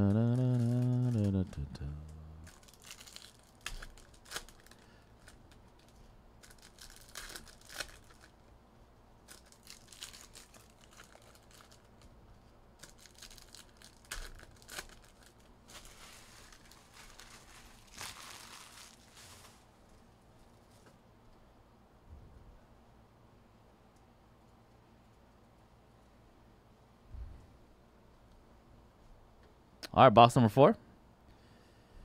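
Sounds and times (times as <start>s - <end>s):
card packaging tearing and crinkling: 0.1s - 8.4s, 9.2s - 12.0s, 12.8s - 19.7s.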